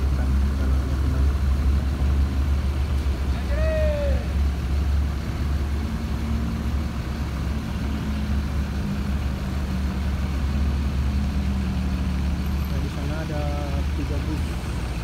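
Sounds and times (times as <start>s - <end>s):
bus diesel engine rumbling: 0.0s - 15.0s.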